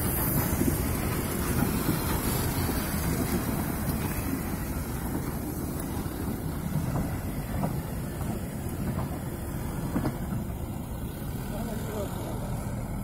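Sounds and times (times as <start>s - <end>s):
wind buffeting microphone: 0.0s - 10.8s
steam locomotives rolling: 0.0s - 13.0s.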